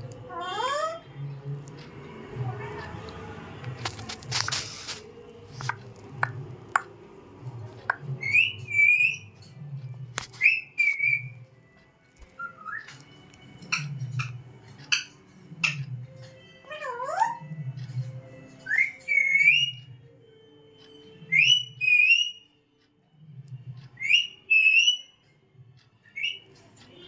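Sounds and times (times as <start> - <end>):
parakeet clicking: 2.8 - 6.9, 7.8 - 9.2, 12.2 - 16.4
brief rustle: 3.8 - 5.8
parakeet whistling: 8.2 - 9.3, 10.4 - 11.3, 12.3 - 12.9, 18.6 - 19.8, 21.2 - 22.5, 24.0 - 25.2, 26.1 - 26.5.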